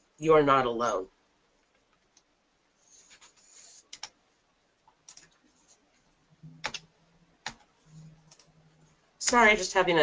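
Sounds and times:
computer mouse clicks: 3.9s - 4.2s, 6.4s - 8.5s.

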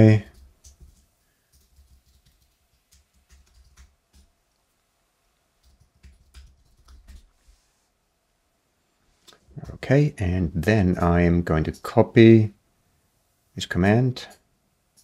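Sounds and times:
faint computer keyboard typing: 0.1s - 4.8s, 5.6s - 7.4s.

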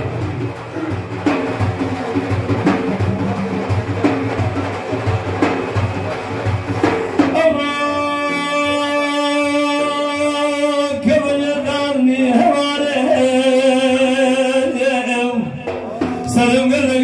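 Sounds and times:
frame drum beating: 0.0s - 7.9s, 15.6s - 17.0s
man singing held note: 7.3s - 17.0s.

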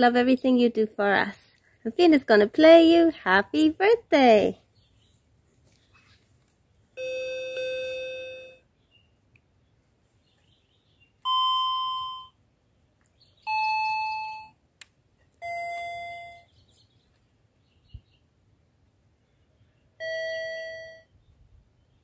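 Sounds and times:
toy keyboard notes: 7.0s - 8.6s, 11.3s - 12.3s, 13.5s - 14.6s, 15.4s - 16.5s, 20.0s - 21.1s.

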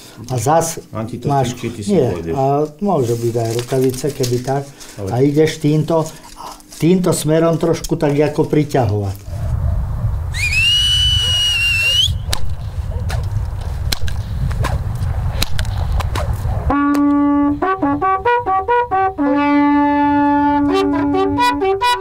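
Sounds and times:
wind rumbling on microphone: 9.0s - 16.8s
high rising whistle-like tone: 10.3s - 12.3s
whip cracks: 12.3s - 13.3s, 13.9s - 14.8s, 15.4s - 16.4s
long wooden horns: 16.7s - 22.0s.

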